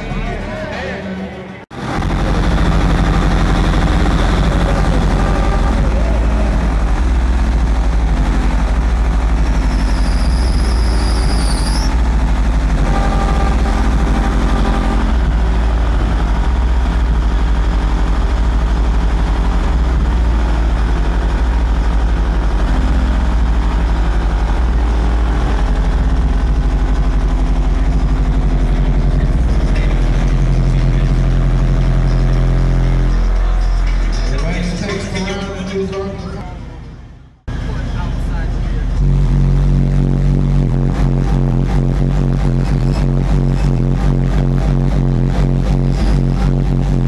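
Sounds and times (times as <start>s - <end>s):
subwoofer deep bass tone: 1.7s - 47.0s
high squeal: 9.5s - 12.1s.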